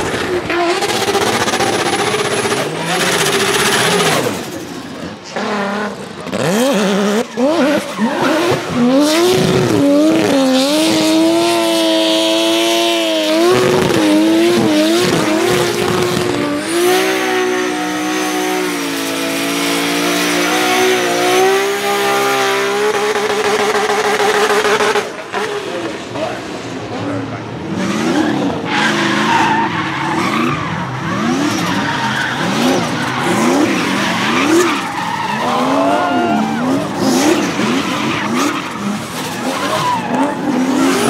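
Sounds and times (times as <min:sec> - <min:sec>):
car engines revving: 0:00.0 - 0:41.0
tyre squeal: 0:28.1 - 0:41.0.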